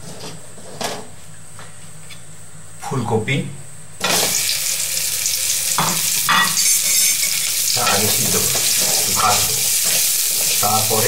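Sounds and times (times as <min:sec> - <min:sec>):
food sizzling in hot oil: 0:04.0 - 0:11.0.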